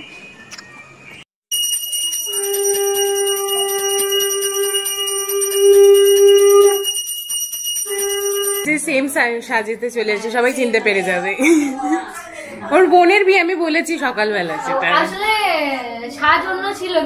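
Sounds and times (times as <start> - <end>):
hand bell rung rapidly: 1.5 - 8.7
loud steady held note: 1.6 - 7.1, 7.8 - 8.7.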